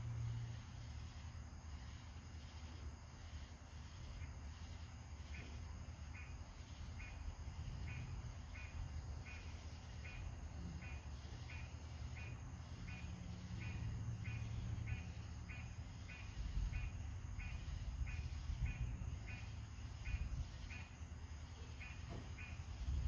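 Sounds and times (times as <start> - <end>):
night insect chirping: 0.0 - 23.0
distant thunder rumble: 12.2 - 20.9.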